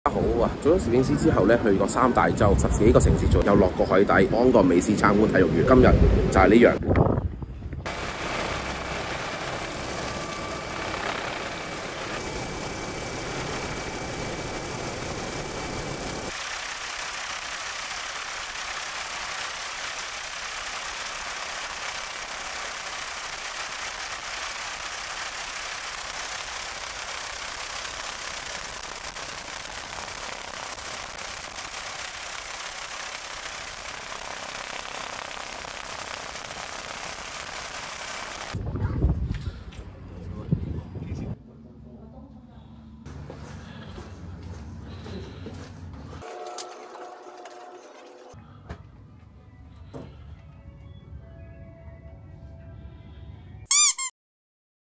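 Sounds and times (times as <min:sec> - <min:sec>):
helicopter drone: 0:07.9 - 0:38.6
high-pitched whine: 0:07.9 - 0:38.6.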